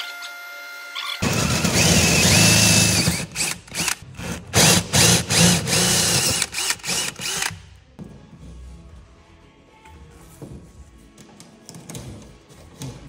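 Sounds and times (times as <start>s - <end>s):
cordless drill motor whining: 1.0s - 4.0s, 4.6s - 7.5s.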